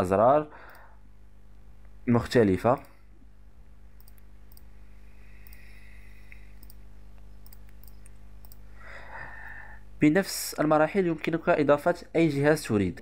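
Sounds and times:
low electrical hum: 0:00.0 - 0:13.0
computer mouse clicking: 0:04.0 - 0:04.7, 0:05.4 - 0:05.7, 0:06.3 - 0:08.6.

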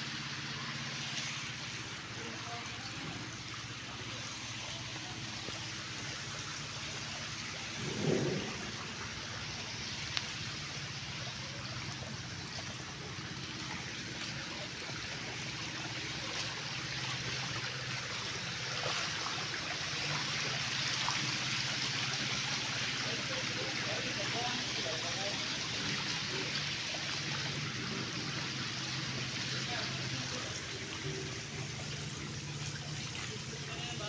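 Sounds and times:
fish splashing in shallow water: 0:00.0 - 0:34.0
faint low hum: 0:00.6 - 0:22.2
low rumble: 0:02.2 - 0:14.4.

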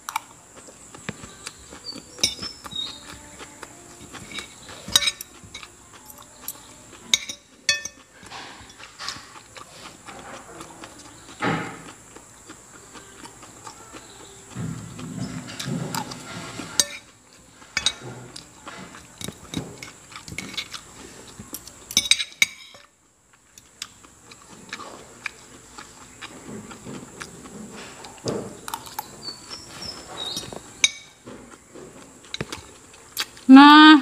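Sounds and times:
cutlery clinking on ceramic plate: 0:02.2 - 0:03.0, 0:04.0 - 0:05.7, 0:07.1 - 0:09.4, 0:15.1 - 0:20.8, 0:21.9 - 0:22.9, 0:28.7 - 0:31.3.

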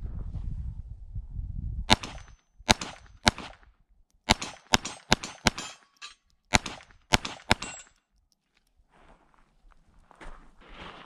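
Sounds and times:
pistol shots: 0:01.9 - 0:03.6, 0:04.2 - 0:08.0.

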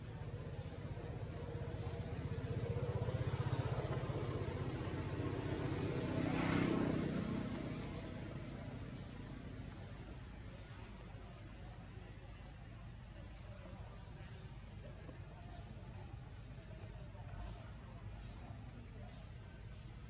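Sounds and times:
high whine of insects: 0:00.0 - 0:20.0
vehicle engine passing by: 0:00.2 - 0:11.2.

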